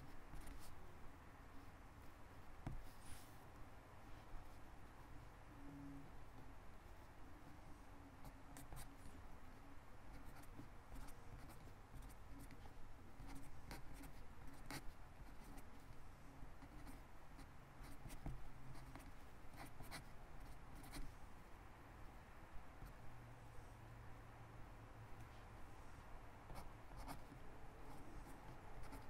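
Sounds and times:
pen scratching on paper: 0.0s - 0.7s, 8.2s - 9.1s, 10.1s - 15.9s, 16.6s - 21.1s, 26.5s - 29.0s.

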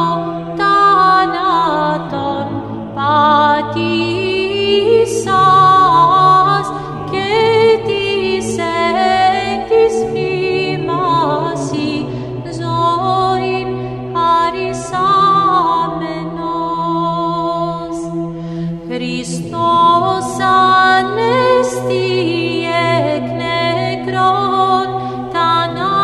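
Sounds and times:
choir chanting a cappella: 0.0s - 26.0s.

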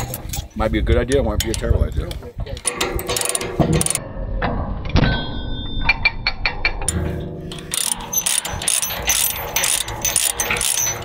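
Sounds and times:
chain clattering: 2.6s - 4.0s, 7.6s - 11.0s
ratchet pawl clicking: 2.6s - 4.0s, 7.6s - 11.0s.

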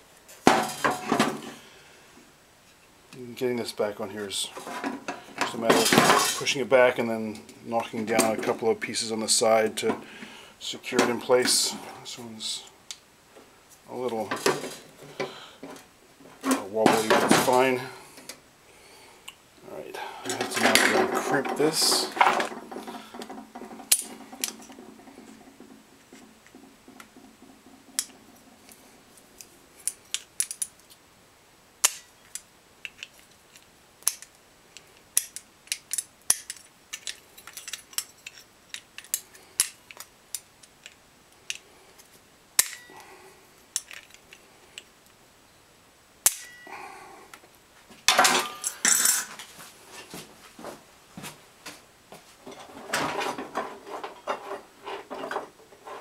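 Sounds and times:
pliers clicking on metal: 31.8s - 41.6s
metallic ringing tone: 46.4s - 46.7s.

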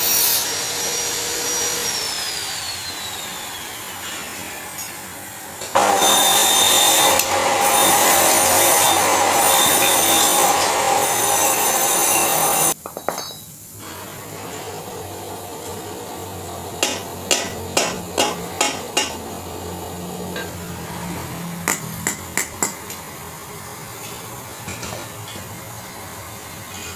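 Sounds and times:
gas welding torch hissing: 0.0s - 12.8s.

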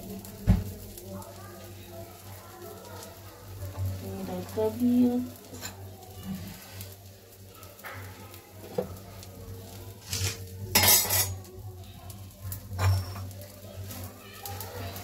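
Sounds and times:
egg sizzling in pan: 0.0s - 15.0s
metal utensils clattering on pans: 3.6s - 6.8s, 9.9s - 11.6s, 12.4s - 14.1s.

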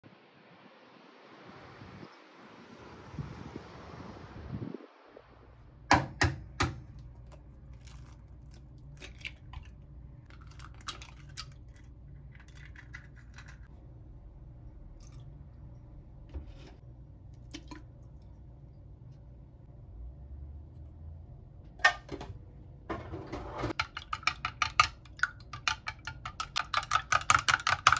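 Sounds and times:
wind on microphone: 2.8s - 5.5s
eggshell crackling: 6.9s - 13.7s.

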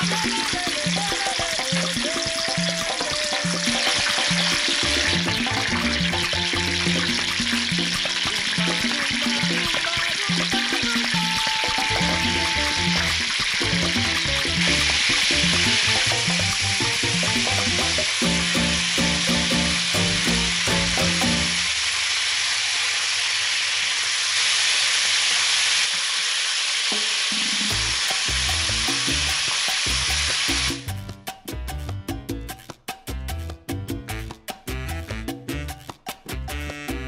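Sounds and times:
chicken sizzling in oil: 0.0s - 31.0s.

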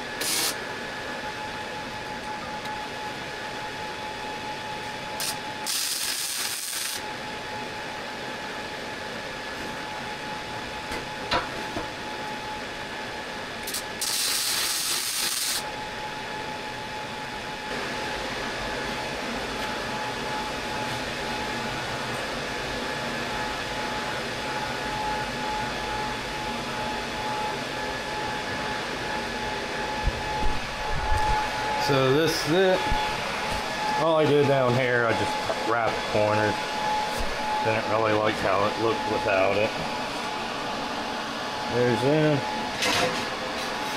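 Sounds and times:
welding hiss: 0.0s - 0.6s, 5.2s - 7.1s, 13.6s - 15.7s
workshop hum: 0.0s - 43.9s.

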